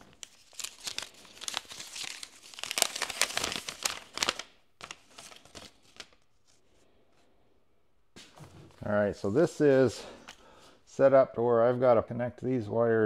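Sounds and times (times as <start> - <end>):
packaging crinkling and tearing: 0.0 - 6.5
packaging rustling: 0.0 - 6.6.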